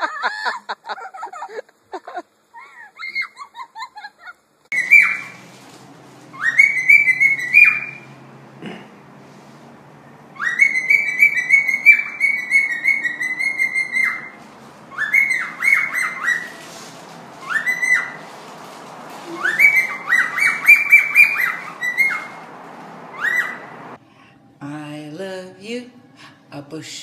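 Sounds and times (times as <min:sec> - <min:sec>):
parrot whistling: 0:04.7 - 0:05.5, 0:06.3 - 0:08.2, 0:10.1 - 0:18.4, 0:19.2 - 0:24.0.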